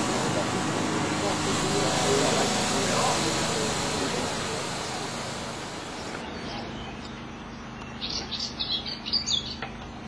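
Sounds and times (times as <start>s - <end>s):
background hiss and low hum: 0.0s - 10.0s
songbird chirping: 6.1s - 9.7s.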